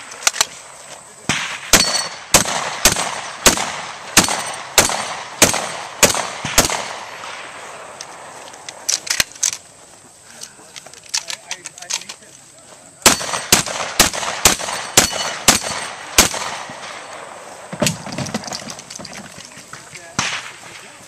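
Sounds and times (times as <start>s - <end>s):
shotgun shots: 1.2s - 7.6s, 13.0s - 21.0s.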